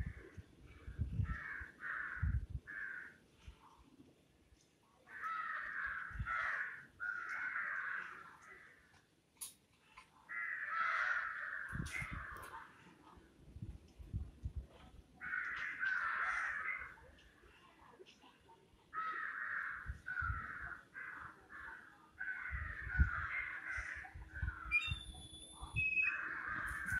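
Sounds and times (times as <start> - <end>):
crows cawing: 1.2 - 3.2, 5.1 - 8.9, 10.3 - 12.5, 15.2 - 17.0, 19.0 - 24.7, 26.1 - 26.9.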